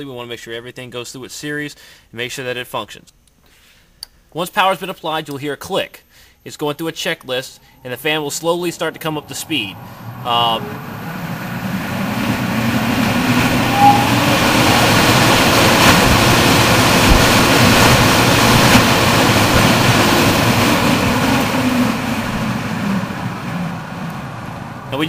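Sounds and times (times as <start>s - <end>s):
faint low hum: 0.0s - 14.1s
fan rushing air: 6.0s - 25.0s.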